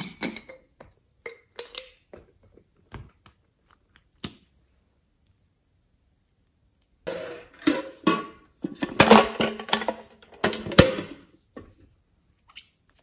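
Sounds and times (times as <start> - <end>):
plastic containers clacking: 7.1 - 11.3.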